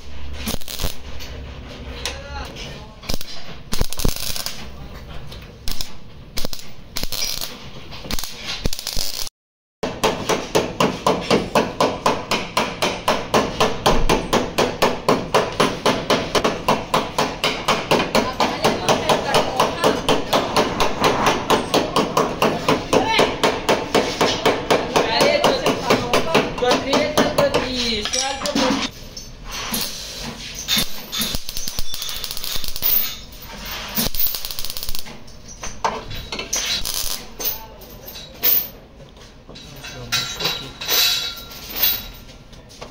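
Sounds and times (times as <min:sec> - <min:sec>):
stick welding crackle: 0:00.0 - 0:01.4, 0:02.8 - 0:09.3, 0:29.7 - 0:35.7, 0:36.3 - 0:37.7
hammer blows on sheet metal: 0:09.8 - 0:27.8.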